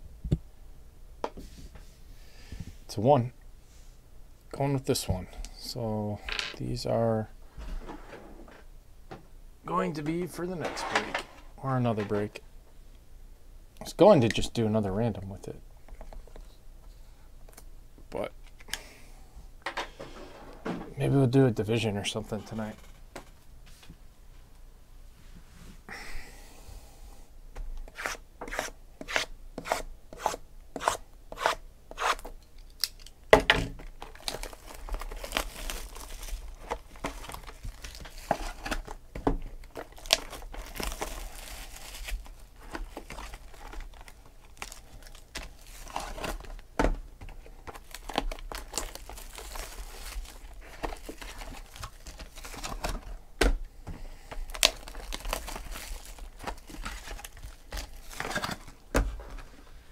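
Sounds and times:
plastic wrap tearing and crinkling: 0:33.9 - 0:39.0, 0:39.6 - 0:46.6, 0:47.4 - 0:53.2, 0:54.4 - 0:58.8.

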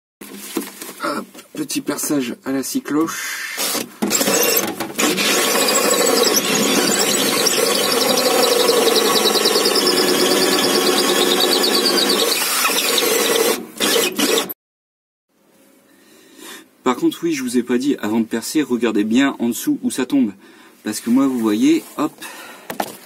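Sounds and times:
drill hole saw cutting wood: 0:03.5 - 0:14.6.

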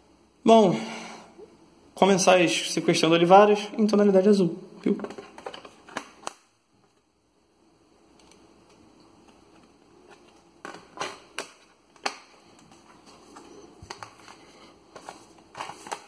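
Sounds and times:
disc case rustling: 0:04.9 - 0:07.0, 0:08.2 - 0:16.0.

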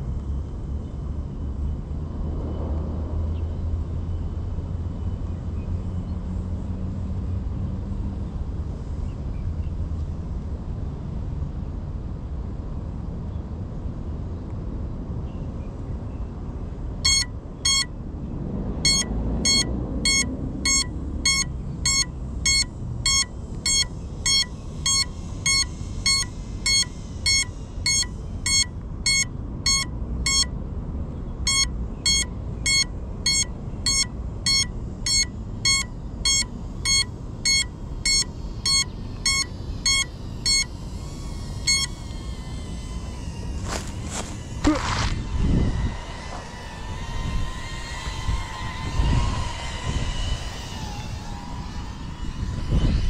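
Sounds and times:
electronic alarm beeps: 0:17.0 - 0:17.9, 0:18.8 - 0:30.6, 0:31.4 - 0:42.9.

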